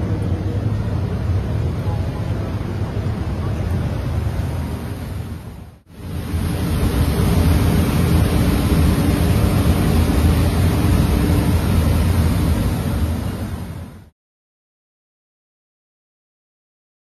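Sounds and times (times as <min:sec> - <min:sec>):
machinery rushing and rumbling: 0:00.0 - 0:14.1.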